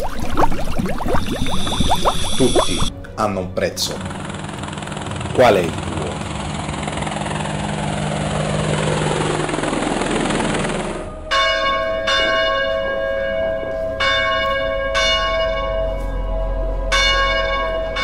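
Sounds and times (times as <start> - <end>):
rushing drone: 3.8 - 16.9
church bell ringing: 11.1 - 18.0.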